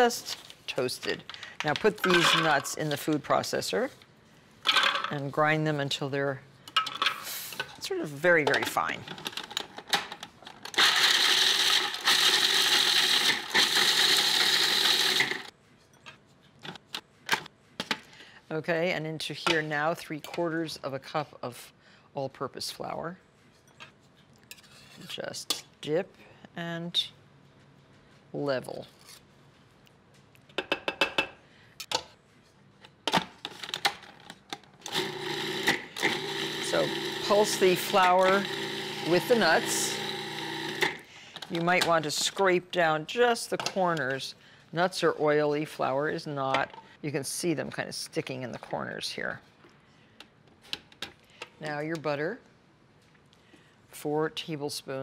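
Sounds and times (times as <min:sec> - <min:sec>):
food processor grinding: 0:10.8 - 0:15.5, 0:34.9 - 0:41.1.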